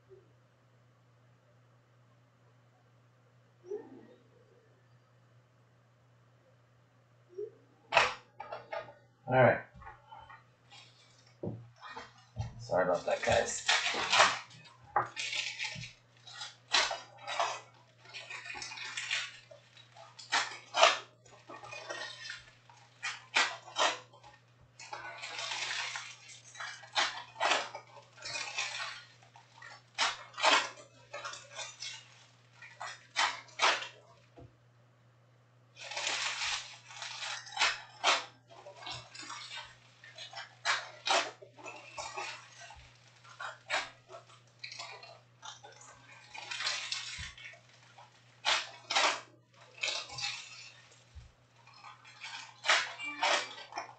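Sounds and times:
foil packs crinkling and tearing: 10.7s - 34.3s, 35.8s - 53.9s.

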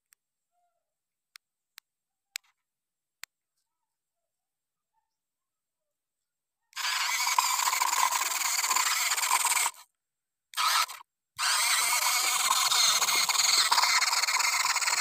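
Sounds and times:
toy motor grinding whine: 6.8s - 9.9s, 10.6s - 15.0s.

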